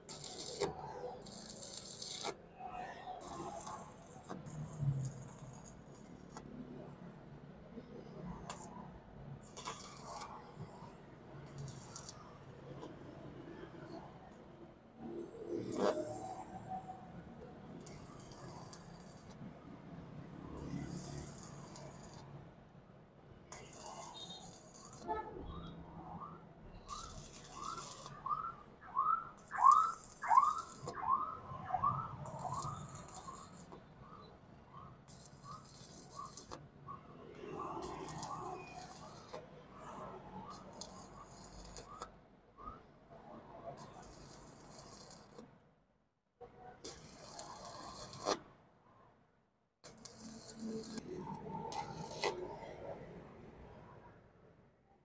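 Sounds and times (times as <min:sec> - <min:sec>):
welding arc crackling and hissing: 0:00.0 - 0:07.0, 0:08.3 - 0:10.8, 0:11.4 - 0:13.1, 0:15.4 - 0:17.0, 0:17.6 - 0:19.6, 0:20.6 - 0:22.5, 0:23.4 - 0:25.6, 0:26.2 - 0:42.8, 0:43.8 - 0:45.5, 0:46.8 - 0:48.5, 0:49.8 - 0:53.1.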